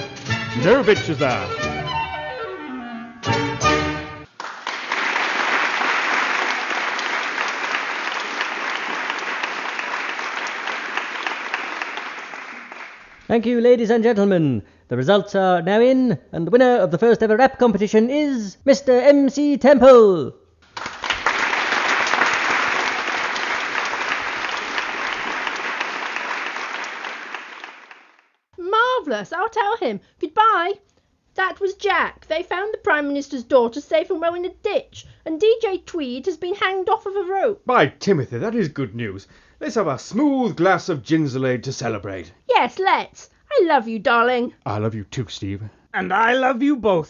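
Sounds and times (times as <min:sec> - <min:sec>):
audience applauding: 0:04.3 - 0:13.3, 0:20.7 - 0:28.4.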